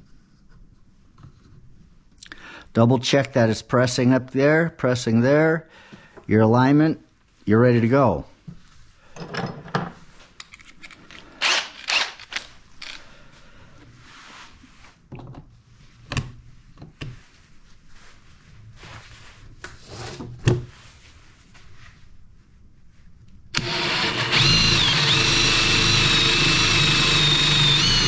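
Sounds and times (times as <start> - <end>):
drill bit fitted into chuck: 10.6 - 13.0, 23.6 - 28.0.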